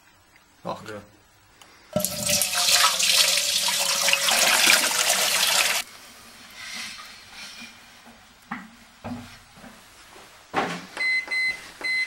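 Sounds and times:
water pouring into metal tank: 2.0s - 5.8s.

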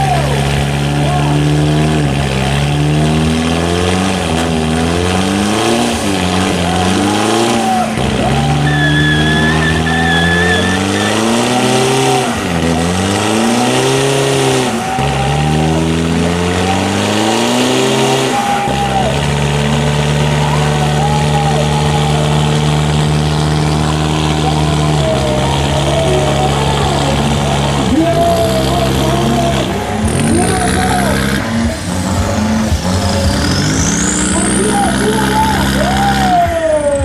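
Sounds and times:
diesel engine revving hard: 0.0s - 37.0s
tyre squealing on paving: 6.3s - 37.0s.

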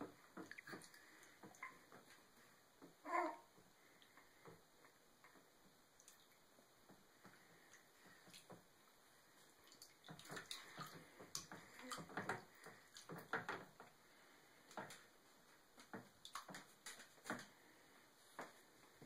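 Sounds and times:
small water splashes in bath: 9.4s - 13.9s, 15.8s - 17.5s.

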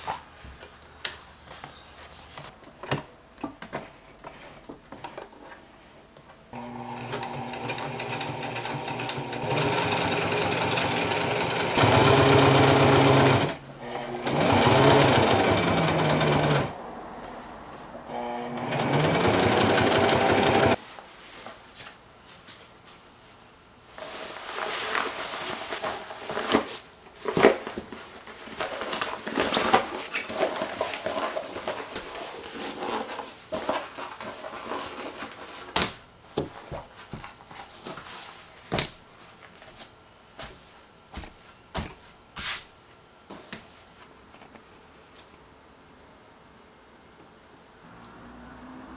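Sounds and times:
sewing machine stitching: 6.6s - 16.8s, 18.1s - 20.8s.

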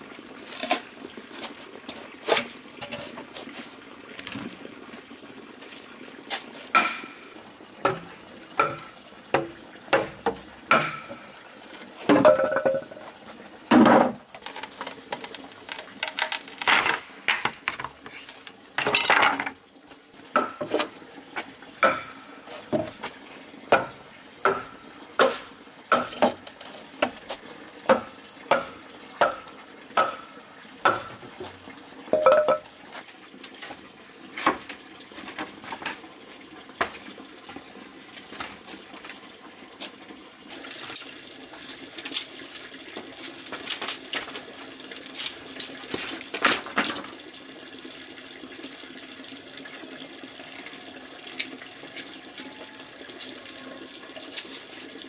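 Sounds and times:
hard objects knocking and clinking: 32.1s - 32.6s.

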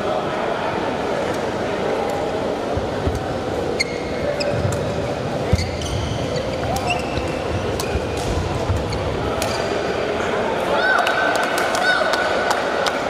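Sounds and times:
sports hall background noise: 0.0s - 13.0s
court shoes squeaking: 2.7s - 9.9s.

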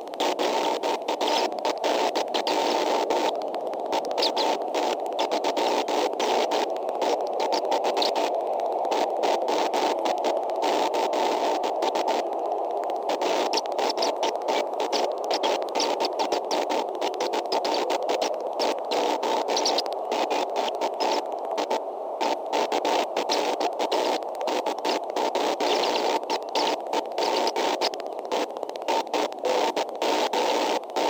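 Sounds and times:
steady hiss with crackle: 0.0s - 31.0s.

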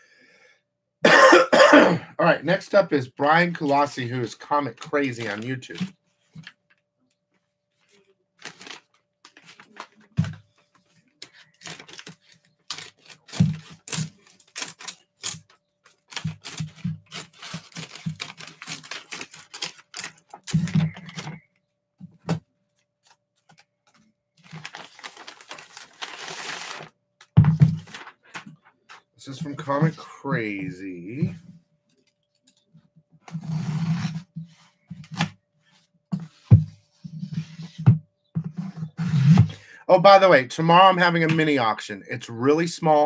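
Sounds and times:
paper tearing: 8.4s - 8.8s, 11.4s - 15.5s, 16.1s - 20.7s, 24.4s - 26.9s
scissors snipping paper envelope: 8.4s - 9.9s, 11.2s - 21.2s, 24.4s - 26.9s.

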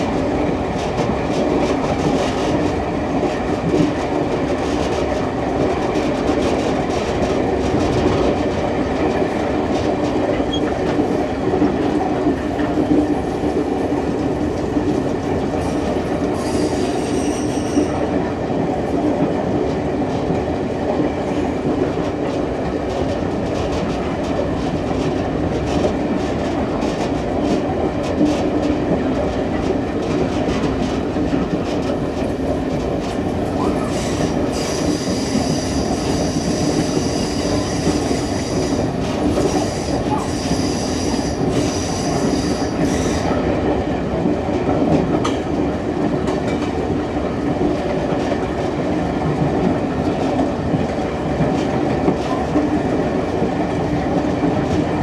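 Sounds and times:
train wheels rumbling on rail: 0.0s - 55.0s
high-pitched wheel squeal: 16.4s - 17.9s.

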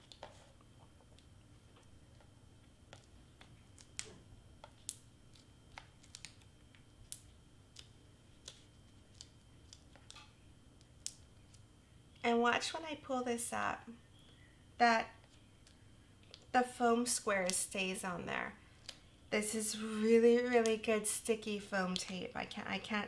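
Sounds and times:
fingers clicking and tapping paper: 2.9s - 11.6s.

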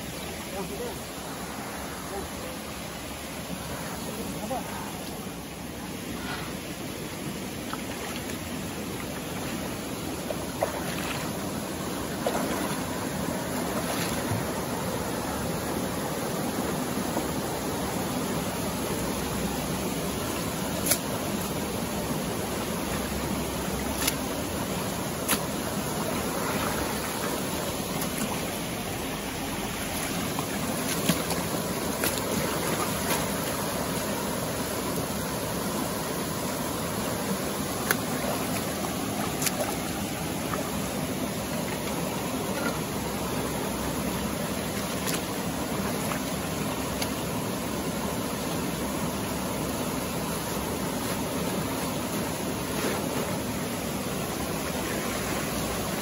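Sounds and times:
river flowing: 0.0s - 56.0s.

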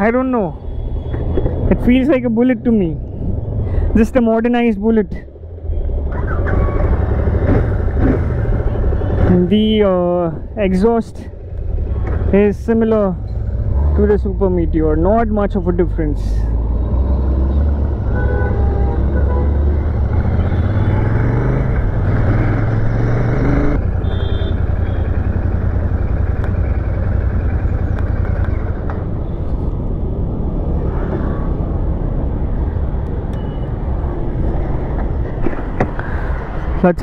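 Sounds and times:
heavy wind: 0.0s - 13.8s, 25.8s - 37.0s
road rumble: 0.0s - 37.0s
motorcycle engine and exhaust: 16.7s - 29.8s.

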